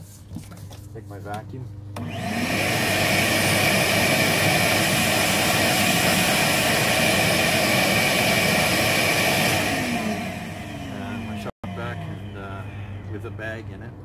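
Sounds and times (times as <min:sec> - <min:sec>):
vacuum cleaner whining: 0:02.0 - 0:12.6.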